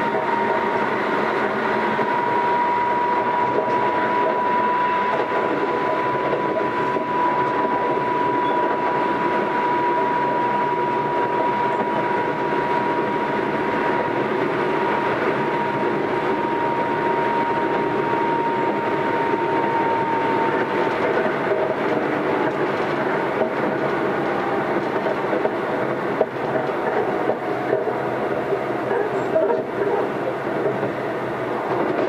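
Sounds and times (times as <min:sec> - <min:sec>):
faint whining tone: 0:00.0 - 0:21.3
rail-joint clicks: 0:00.0 - 0:32.0
train wheels rumbling on rail: 0:00.0 - 0:32.0.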